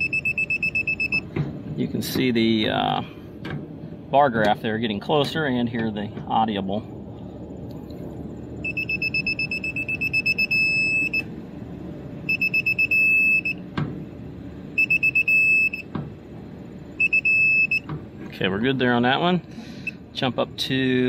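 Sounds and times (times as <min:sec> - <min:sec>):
torque wrench beeping: 0:08.6 - 0:11.3, 0:12.3 - 0:13.6, 0:14.8 - 0:15.9, 0:16.9 - 0:17.9.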